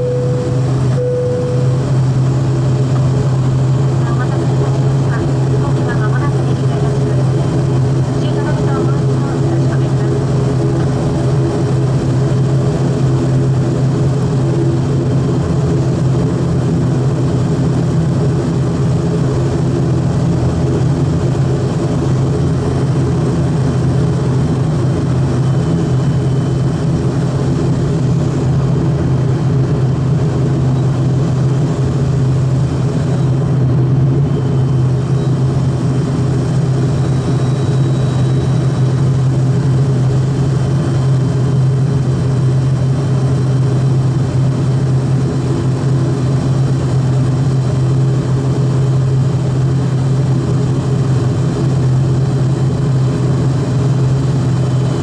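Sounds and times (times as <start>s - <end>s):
turboprop engine drone: 0.0s - 55.0s.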